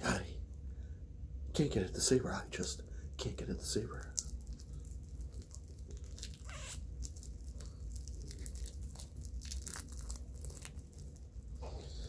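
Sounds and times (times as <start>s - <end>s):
fingers scratching plastic wrap: 5.2s - 11.3s.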